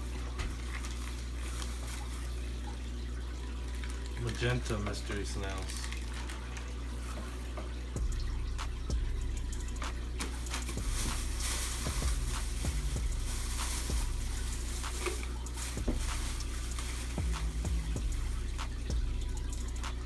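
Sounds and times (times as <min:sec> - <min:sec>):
plastic bags crinkling and rustling: 0:00.0 - 0:02.8, 0:03.4 - 0:07.9, 0:10.2 - 0:18.6
sharp plastic crackles: 0:03.5 - 0:07.5, 0:09.8 - 0:18.8
steady low hum: 0:06.6 - 0:20.0.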